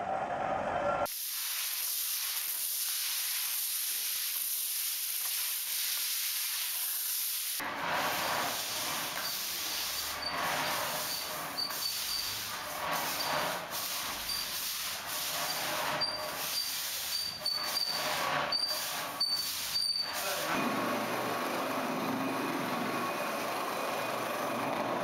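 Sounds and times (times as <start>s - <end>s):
broom scraping wet cement: 2.3s - 20.5s.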